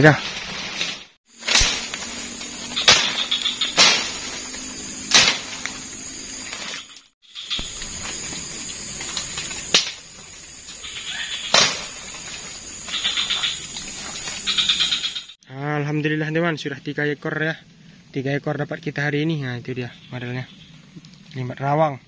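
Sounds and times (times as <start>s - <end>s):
sharp cracks: 0.7s - 6.8s, 9.1s - 10.1s, 11.4s - 13.0s
thin high drone: 1.3s - 8.7s
insects trilling: 1.3s - 22.0s.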